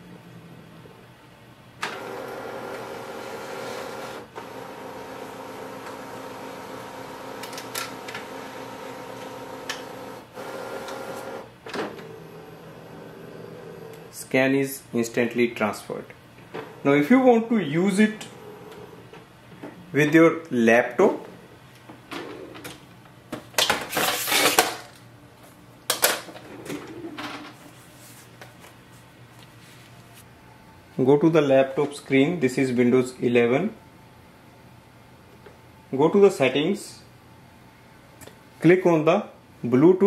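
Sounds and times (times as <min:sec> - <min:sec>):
scanner motor hum: 0:01.8 - 0:14.2, 0:17.8 - 0:19.2.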